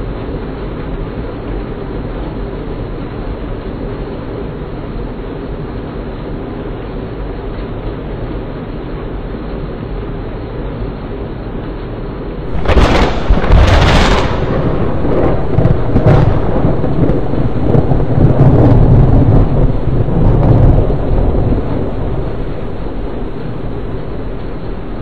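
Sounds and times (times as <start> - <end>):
heavy rain downpour: 0.0 - 25.0
low rumble of thunder: 12.4 - 25.0
thunder cracks: 12.5 - 25.0.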